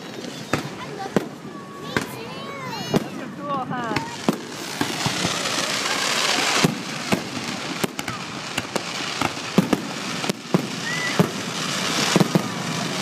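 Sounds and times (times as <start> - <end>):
hissing crackle: 0.0 - 13.0
firework shells bursting: 2.8 - 13.0.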